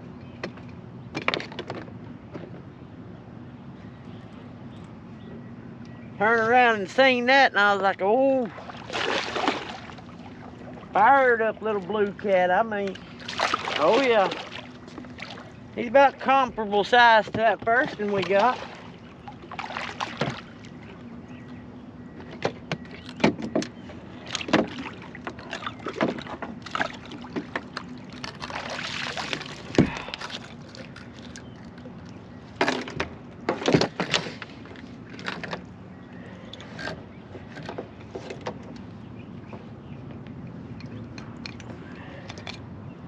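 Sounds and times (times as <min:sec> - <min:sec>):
steady low hum: 0:00.0 - 0:43.0
knocks and clatter of handling: 0:32.6 - 0:35.7.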